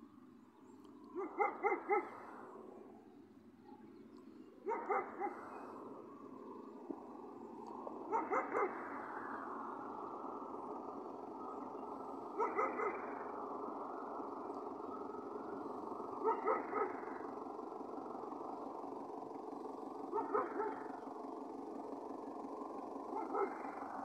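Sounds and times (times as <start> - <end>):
steady background noise: 0.0 - 24.0
dog barking: 1.2 - 2.2, 4.6 - 5.5, 8.1 - 8.8, 12.4 - 13.1, 16.2 - 17.1, 20.1 - 20.9, 23.1 - 23.8.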